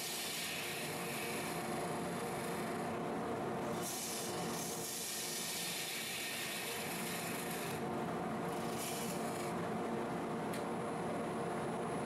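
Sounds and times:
tool scraping spinning wood: 0:08.5 - 0:09.5.

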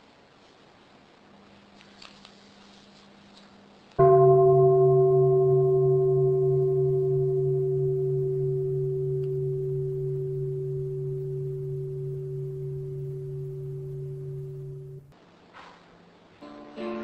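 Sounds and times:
bowl bell ringing: 0:04.0 - 0:15.1.

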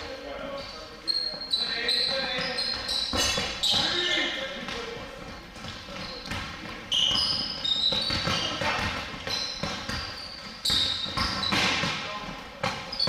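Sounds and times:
sneaker squeaks: 0:00.0 - 0:13.0
basketball dribbling on hardwood: 0:05.6 - 0:12.0.

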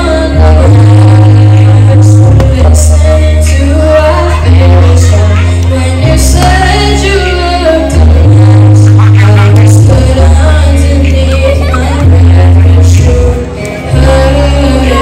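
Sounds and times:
boy singing into a microphone: 0:00.0 - 0:15.0
pop backing track: 0:00.0 - 0:15.0.

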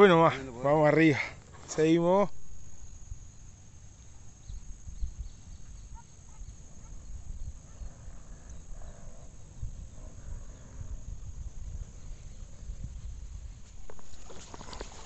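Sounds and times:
high-pitched insect trill: 0:00.0 - 0:15.0
wind buffeting microphone: 0:04.4 - 0:15.0.

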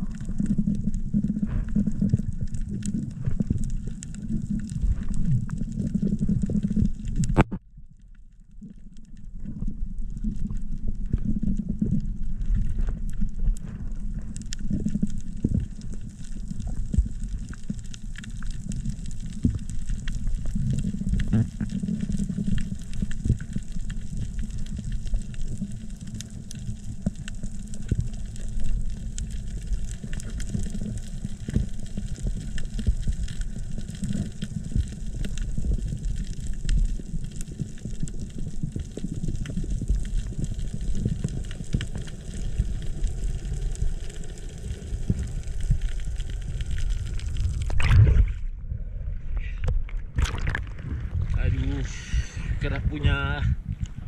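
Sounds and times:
faint crackling clicks: 0:00.0 - 0:48.0, 0:49.4 - 0:54.0
muffled underwater rush of water: 0:00.0 - 0:54.0.

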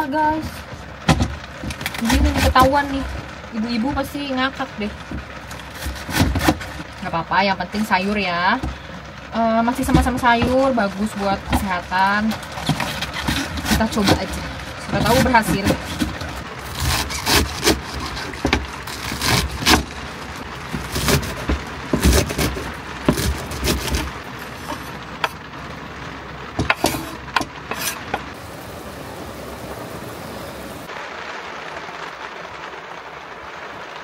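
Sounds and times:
scrapes and knocks on board: 0:05.1 - 0:06.9, 0:12.3 - 0:20.0, 0:20.7 - 0:25.4, 0:26.6 - 0:28.3
knife chopping lettuce on board: 0:16.8 - 0:19.9, 0:20.8 - 0:25.4
steady hiss: 0:24.3 - 0:34.0.

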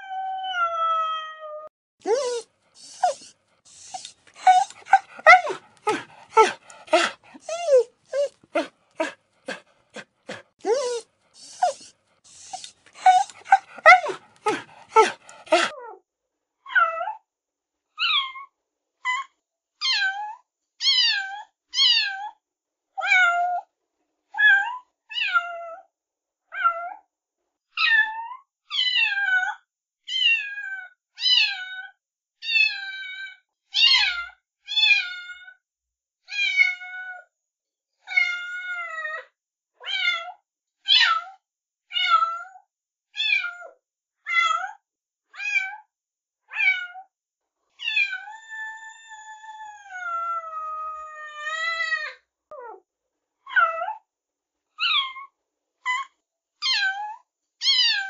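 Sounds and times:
cat meowing: 0:02.1 - 0:09.6, 0:10.3 - 0:15.7.

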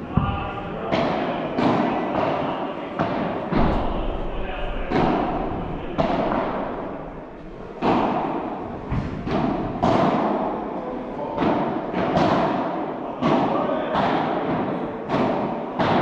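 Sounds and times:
padel ball hits echoing: 0:00.0 - 0:10.7.

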